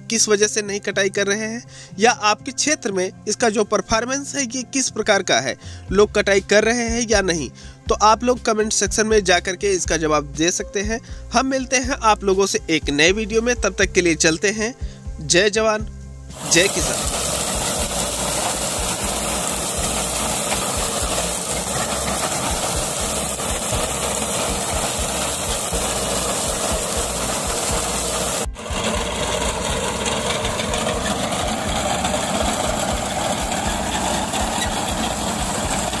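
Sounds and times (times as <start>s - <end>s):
reaper cutting wheat: 16.3s - 36.0s
tractor engine running: 16.3s - 36.0s.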